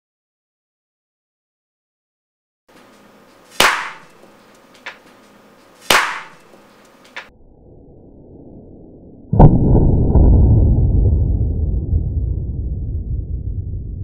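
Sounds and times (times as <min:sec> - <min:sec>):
paintball marker firing cracks: 0:03.5 - 0:05.2, 0:05.8 - 0:07.3.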